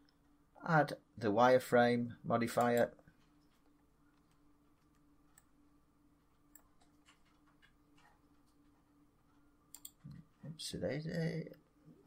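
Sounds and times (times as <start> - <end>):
faint steady hum: 0.0 - 12.0
computer mouse clicks: 6.5 - 8.6, 9.7 - 10.2.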